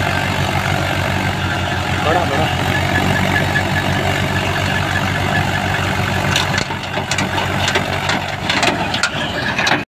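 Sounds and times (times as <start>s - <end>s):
thin steady whine: 0.0s - 9.0s
tractor diesel engine running: 0.0s - 9.9s
sharp clicks and knocks: 6.2s - 9.8s.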